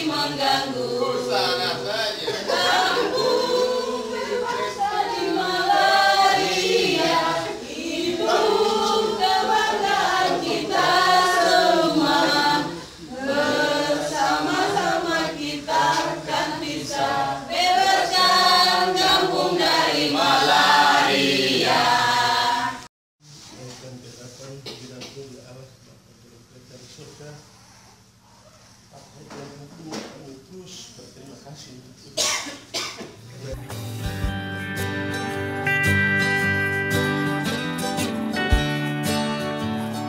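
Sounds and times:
group of people singing: 0.0s - 22.9s.

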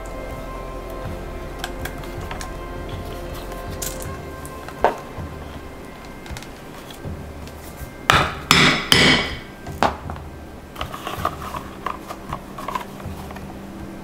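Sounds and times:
leather pieces clicking and rustling: 1.6s - 5.2s, 9.7s - 13.6s
hammer striking metal rivet setter: 8.1s - 10.0s.

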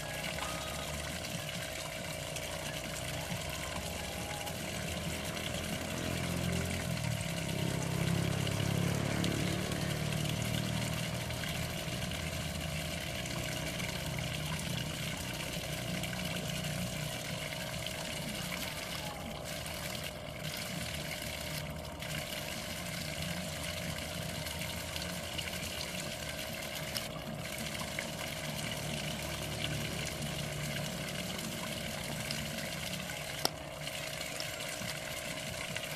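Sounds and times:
pond water running and trickling: 0.0s - 35.9s.

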